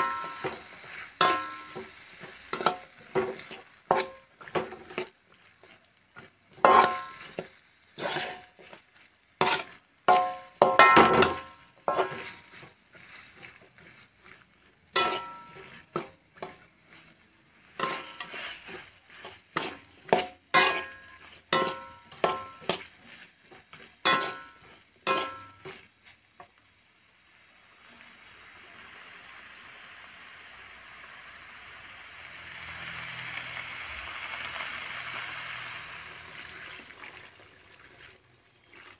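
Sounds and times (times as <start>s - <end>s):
metal spatula scraping a wok: 0.0s - 26.6s
paste sizzling: 0.0s - 38.9s.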